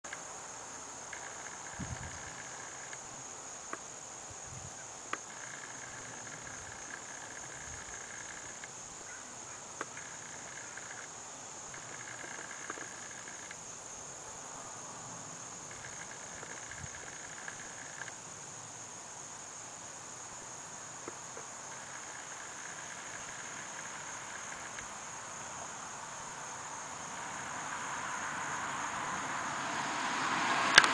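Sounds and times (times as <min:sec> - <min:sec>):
insect buzzing chorus: 0:00.1 - 0:30.9
insect high-pitched trill: 0:00.1 - 0:30.9
broad rush of noise: 0:24.8 - 0:30.9.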